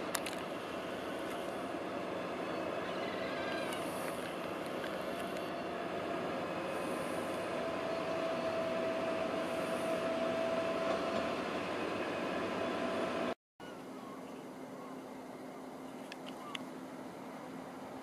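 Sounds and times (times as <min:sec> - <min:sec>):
rail vehicle running noise: 0:00.0 - 0:18.0
thin whine: 0:00.0 - 0:18.0.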